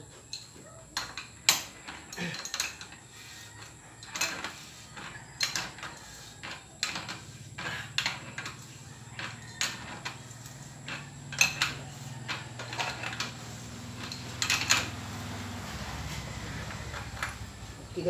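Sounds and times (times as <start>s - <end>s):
metal tool clicks and clinks: 0.3s - 3.0s, 14.0s - 14.9s.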